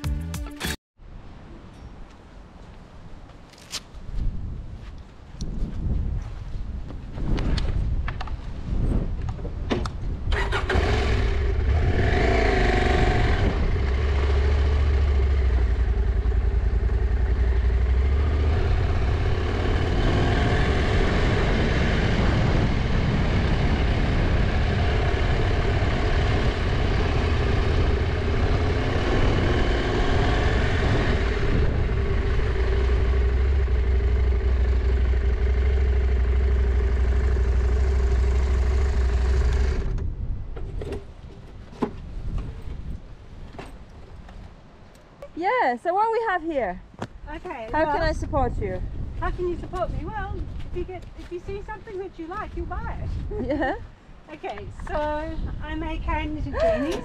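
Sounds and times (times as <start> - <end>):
motorcycle engine revving: 10.3 - 40.0.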